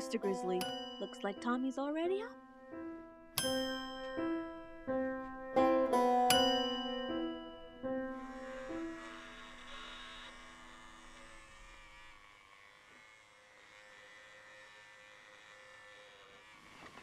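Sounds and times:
background music held notes: 0.0s - 11.1s.

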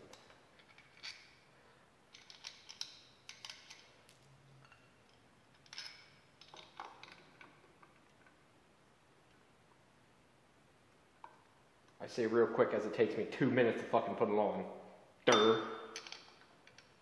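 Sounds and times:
metal bracket and bolts clinking: 0.0s - 1.4s, 2.1s - 8.1s, 15.3s - 17.0s.

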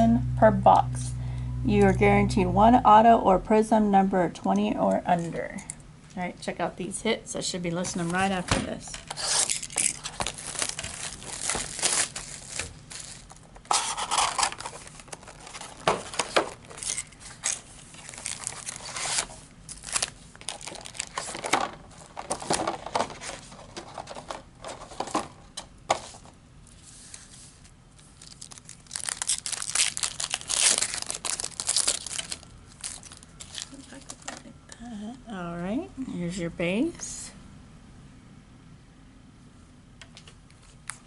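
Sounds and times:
plastic wrap tearing and crinkling: 9.1s - 25.1s, 27.9s - 34.4s
foil packs rustling: 9.1s - 25.3s, 27.1s - 34.4s.

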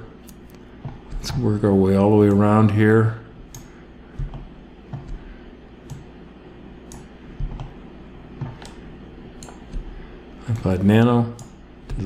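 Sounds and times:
computer mouse clicking: 3.4s - 6.1s, 6.8s - 7.8s, 8.4s - 10.7s, 11.3s - 12.0s.

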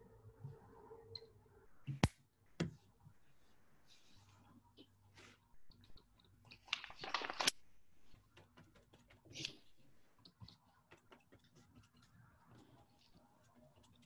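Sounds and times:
paper rustling and crackling: 6.5s - 8.2s.

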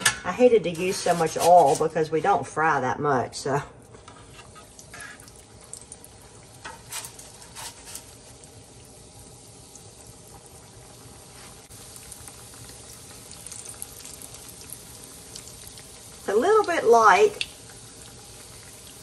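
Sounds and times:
dough frying in hot oil: 3.9s - 19.0s.

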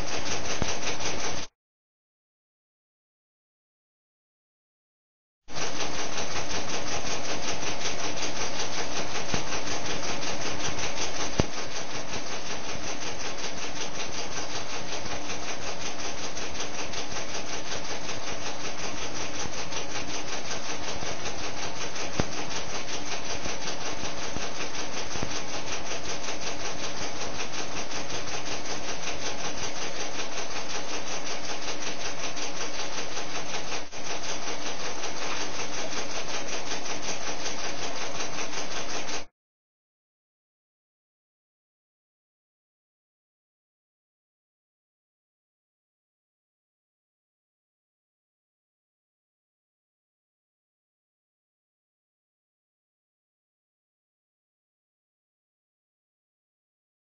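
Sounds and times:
vacuum pump running: 0.0s - 1.5s, 5.5s - 39.3s.

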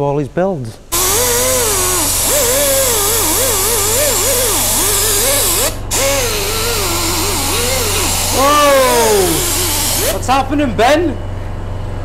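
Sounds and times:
air compressor humming: 0.8s - 10.9s
compressed air hissing: 0.9s - 10.4s.

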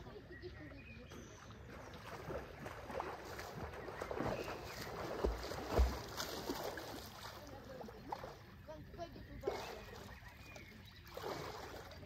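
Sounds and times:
water lapping against dock: 0.0s - 12.0s
swimmer splashing: 1.6s - 8.5s, 9.4s - 12.0s.

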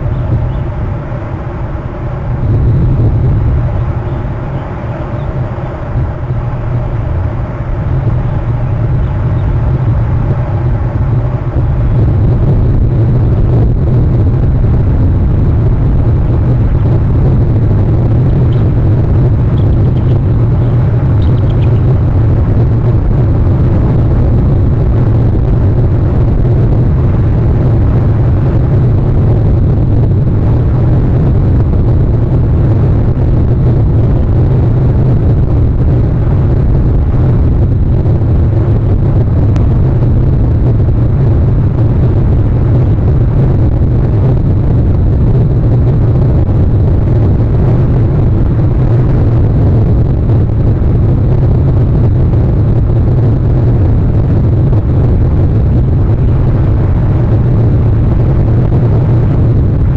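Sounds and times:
low rumbling noise: 0.0s - 59.9s.

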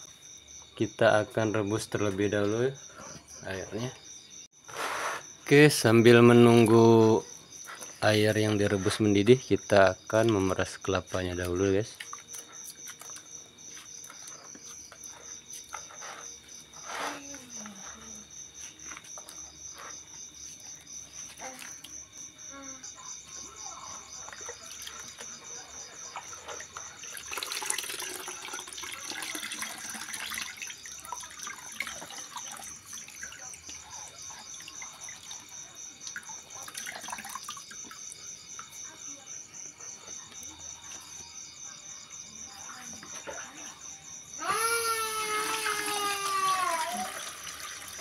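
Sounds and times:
crickets chirping: 0.0s - 48.0s
liquid splashing and dripping: 26.0s - 38.7s.

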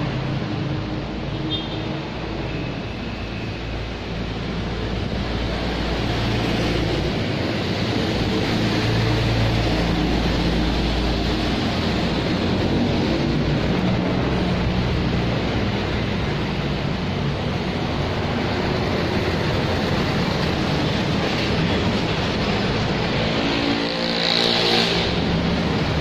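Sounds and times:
street traffic noise: 0.0s - 26.0s.

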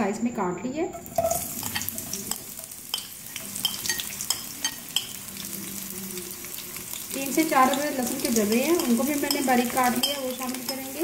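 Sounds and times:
onion sizzling in hot oil: 0.9s - 11.0s
spatula clicking and scraping pan: 1.0s - 5.5s, 6.4s - 11.0s.

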